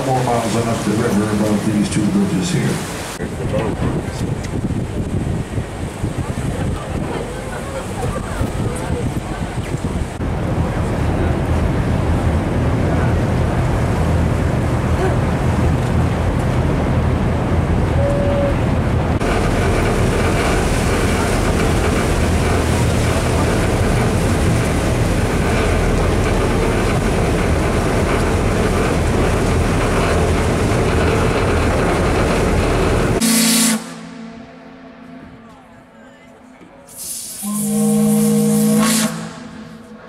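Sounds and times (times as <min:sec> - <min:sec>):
boat engine rumbling: 0:00.0 - 0:40.0
churning water: 0:00.0 - 0:40.0
wind on microphone: 0:03.1 - 0:33.2.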